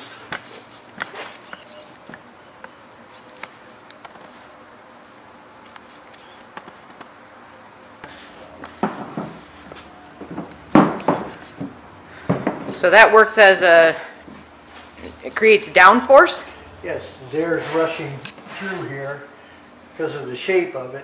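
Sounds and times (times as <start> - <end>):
faint buzzing hum: 0.0 - 21.0
bumps and rustles: 8.0 - 12.9.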